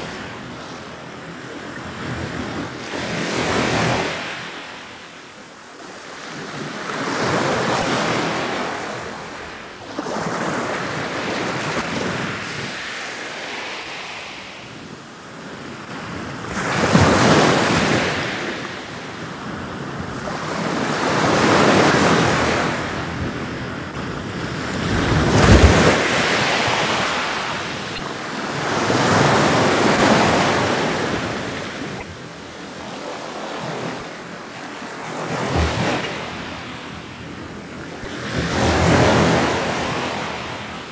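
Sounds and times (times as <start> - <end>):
ocean waves washing in: 15.8 - 40.9.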